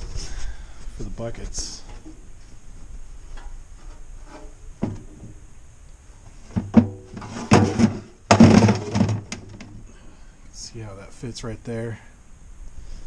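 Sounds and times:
plastic knocking and clattering: 0:04.8 - 0:05.4, 0:06.5 - 0:09.7.

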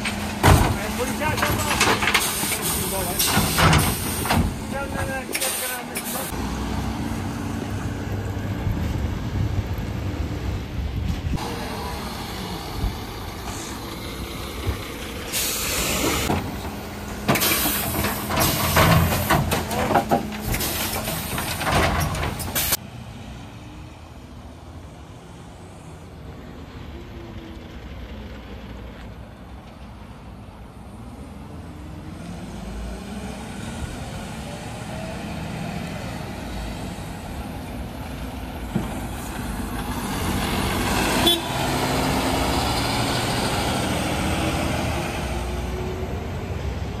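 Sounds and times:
truck engine driving off: 0:00.0 - 0:23.4, 0:31.5 - 0:47.0
air brake hisses: 0:15.3 - 0:16.3.

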